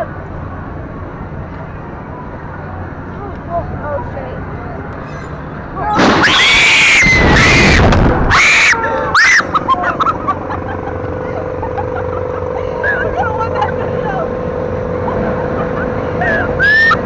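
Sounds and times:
ride humming: 0:00.0 - 0:17.0
young women screaming: 0:05.9 - 0:10.1, 0:16.2 - 0:17.0
wind rushing on microphone: 0:07.0 - 0:08.4
women laughing: 0:08.7 - 0:14.3, 0:14.9 - 0:17.0.

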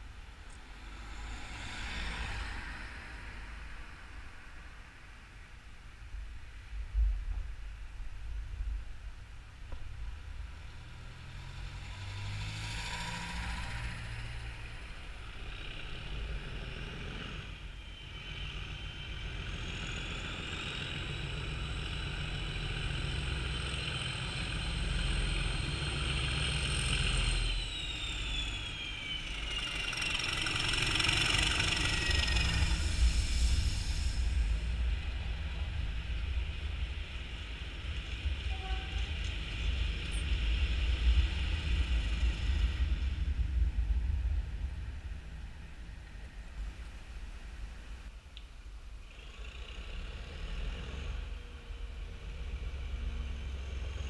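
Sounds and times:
diesel locomotive engine rumbling: 0:00.0 - 0:49.1, 0:49.7 - 0:54.0
train wheel noise: 0:19.3 - 0:47.8
turbocharger whistle: 0:26.6 - 0:32.9.

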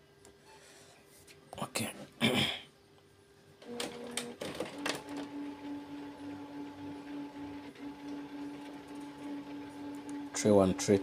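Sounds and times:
printer clicks: 0:03.6 - 0:05.5
printer mechanism humming: 0:03.6 - 0:11.0.

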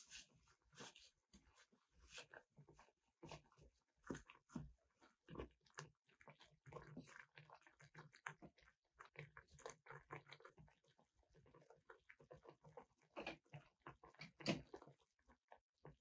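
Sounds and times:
soup simmering bubbling and popping: 0:01.2 - 0:16.0.

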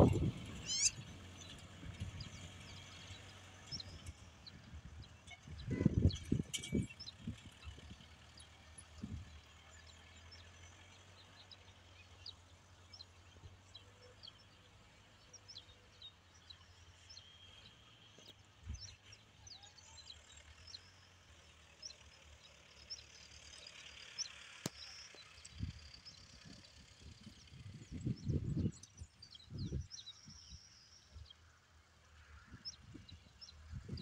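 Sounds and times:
distant tractor engine drone: 0:00.0 - 0:34.0
high bird chirps: 0:00.1 - 0:01.0.

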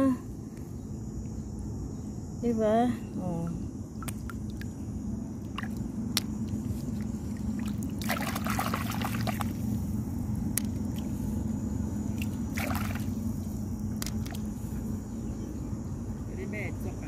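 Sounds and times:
low steady hum: 0:00.0 - 0:17.0
shallow water splashing: 0:05.4 - 0:09.7, 0:12.1 - 0:14.5.

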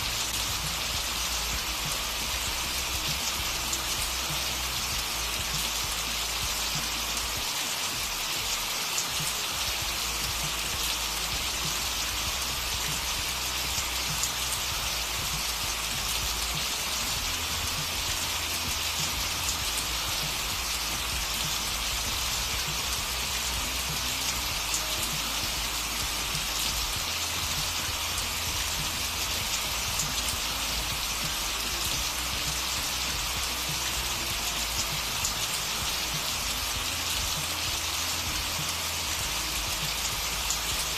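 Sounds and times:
steady rain: 0:00.0 - 0:40.9.

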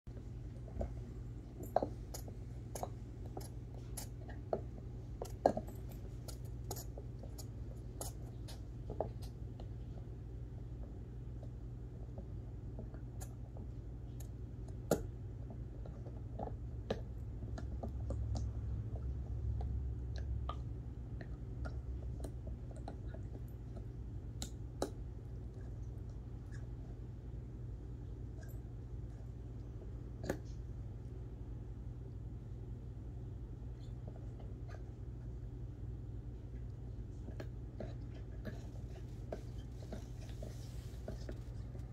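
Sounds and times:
low steady hum: 0:00.1 - 0:41.9
dog chewing a toy: 0:00.5 - 0:10.2, 0:36.4 - 0:41.9.

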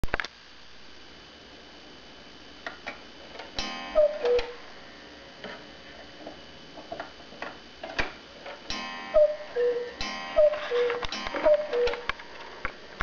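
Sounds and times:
two-note cuckoo call: 0:03.6 - 0:04.6, 0:08.8 - 0:12.2
clock gong strike: 0:03.6 - 0:05.1, 0:08.7 - 0:12.6
clock mechanism ticking: 0:08.7 - 0:13.0.

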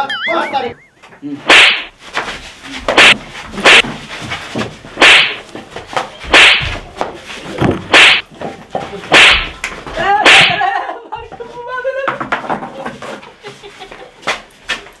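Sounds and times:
sharp whip-like smacks: 0:01.5 - 0:01.9, 0:02.9 - 0:03.9, 0:05.0 - 0:05.5, 0:06.3 - 0:06.8, 0:07.9 - 0:08.3, 0:09.1 - 0:10.6.

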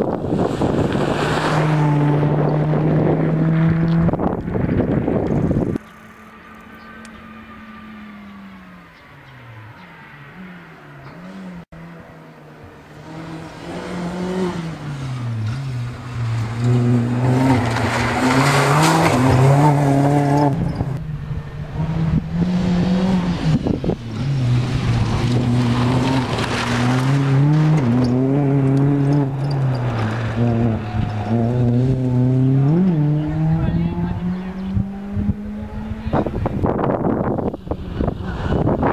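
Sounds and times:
rally car engine revving: 0:00.0 - 0:08.8, 0:09.4 - 0:38.9
tyres on loose gravel: 0:14.8 - 0:20.9, 0:23.5 - 0:31.8.

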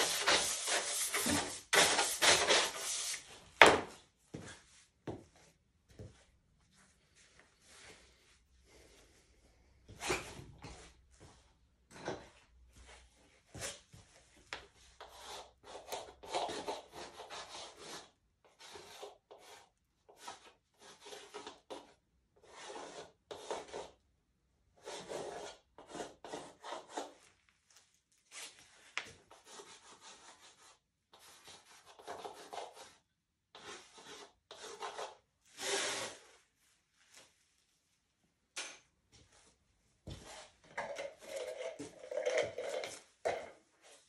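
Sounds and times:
pencil scratching on wood: 0:15.0 - 0:24.0, 0:24.8 - 0:27.2, 0:29.3 - 0:35.2.

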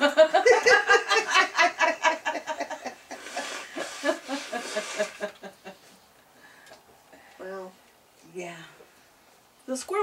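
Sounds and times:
women laughing: 0:00.0 - 0:05.9
person blowing nose: 0:03.1 - 0:05.4.

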